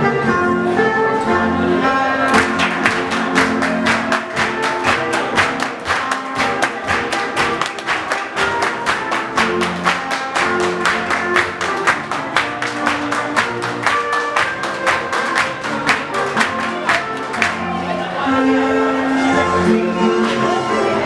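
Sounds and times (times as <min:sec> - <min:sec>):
folk dance music: 0:00.0 - 0:21.0
sharp hand claps: 0:02.3 - 0:17.6.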